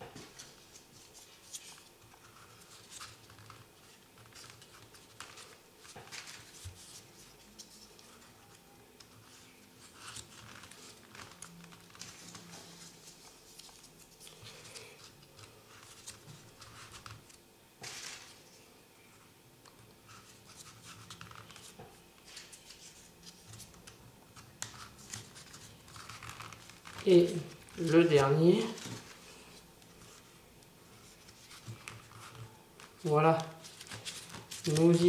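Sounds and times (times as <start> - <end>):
paper rustling and scratching: 0.2 - 18.6, 19.7 - 35.0.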